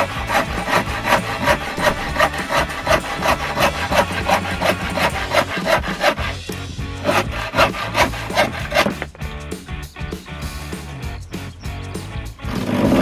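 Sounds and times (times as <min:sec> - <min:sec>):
hand saw cutting wood: 0:00.0 - 0:09.2, 0:12.4 - 0:13.0.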